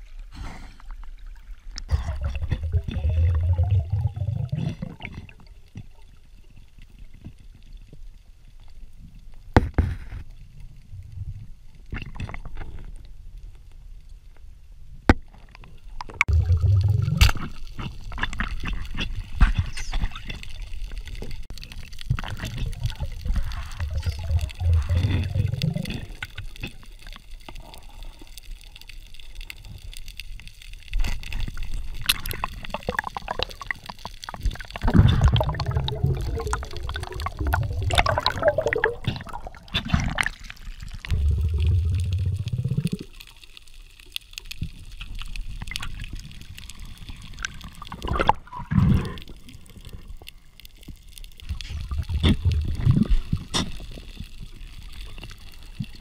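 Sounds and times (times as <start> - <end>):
water gurgling underwater: 1.3 - 6.0, 16.0 - 27.2, 30.6 - 56.0.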